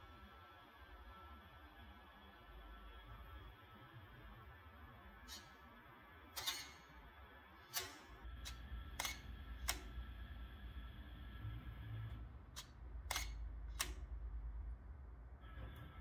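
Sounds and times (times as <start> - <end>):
low steady hum: 0.0 - 16.0
camera shutter firing: 6.4 - 6.8, 7.7 - 9.9, 12.6 - 14.0.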